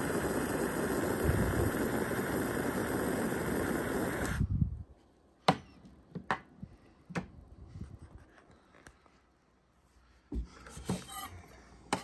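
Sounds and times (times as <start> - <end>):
gas torch hissing: 0.0 - 4.8.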